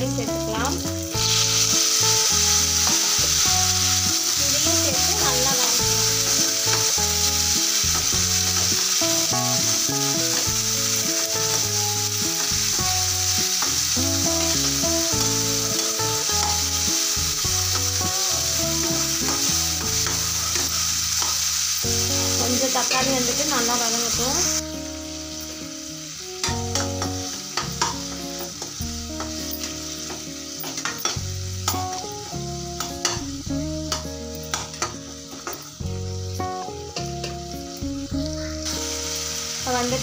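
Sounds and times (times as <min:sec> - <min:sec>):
tomatoes sizzling in hot oil: 0:00.0 - 0:40.0
metal spatula stirring: 0:19.2 - 0:21.7.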